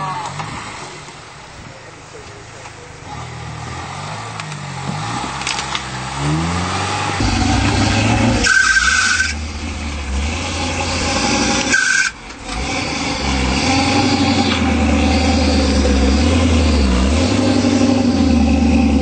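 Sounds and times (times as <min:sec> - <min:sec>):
engine revving and labouring: 0:00.0 - 0:19.0
brief high squeal: 0:07.2 - 0:09.5, 0:11.7 - 0:12.2.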